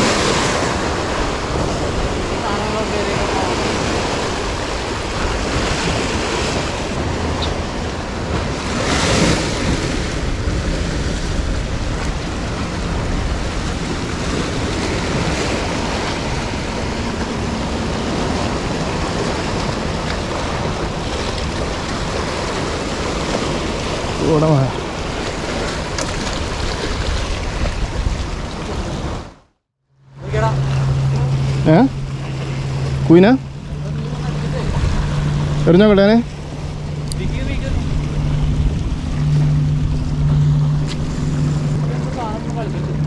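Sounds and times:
sea waves washing around rocks: 0:00.0 - 0:29.5, 0:30.2 - 0:43.0
wind noise on microphone: 0:24.8 - 0:29.4, 0:36.3 - 0:43.0.

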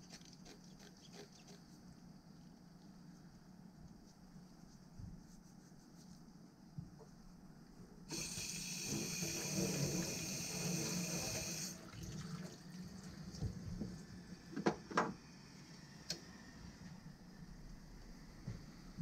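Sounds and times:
water running from a tap: 0:08.1 - 0:13.4.

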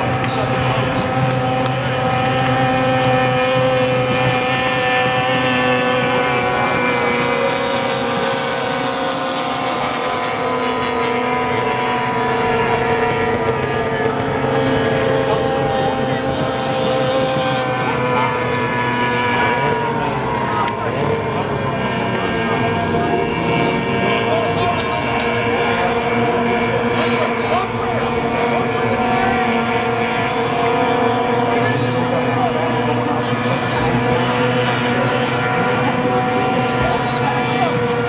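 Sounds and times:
outboard engines high-pitched drone: 0:00.0 - 0:38.0.

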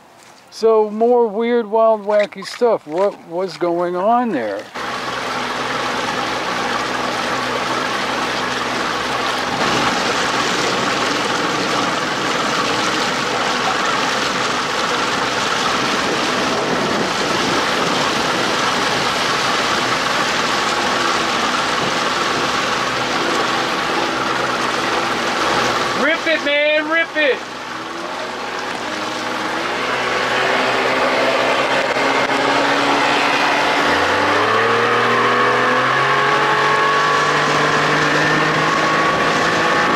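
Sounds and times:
outboard motor running: 0:00.0 - 0:39.9
rushing water: 0:00.0 - 0:39.9
wind noise: 0:14.9 - 0:20.6.

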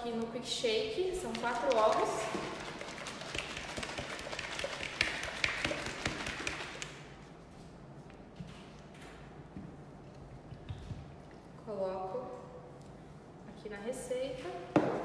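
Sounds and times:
eggs shaken in plastic shaker: 0:01.0 - 0:07.3.

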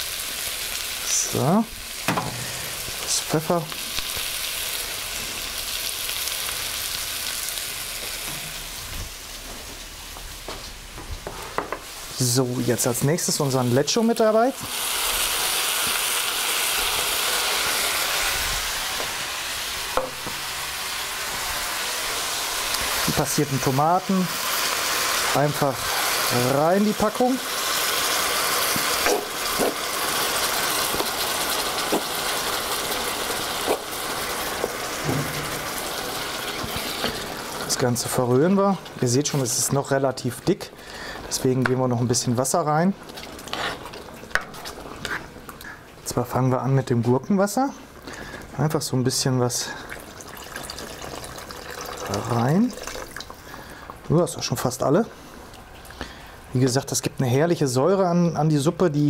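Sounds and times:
vegetables sizzling in a pot: 0:00.0 - 0:46.5.

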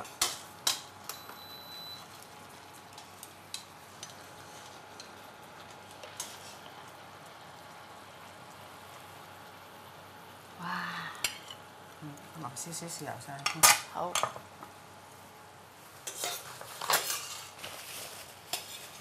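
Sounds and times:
liquid simmering in a pan: 0:00.0 - 0:19.0
cooktop beep: 0:01.0 - 0:02.2.

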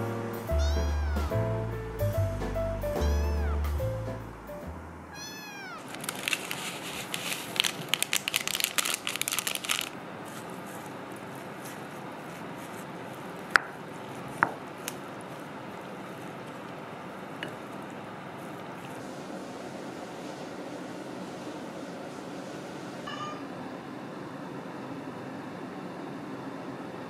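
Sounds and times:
kitten meowing: 0:00.5 - 0:01.4, 0:02.9 - 0:03.8, 0:05.1 - 0:05.9, 0:23.1 - 0:23.4.

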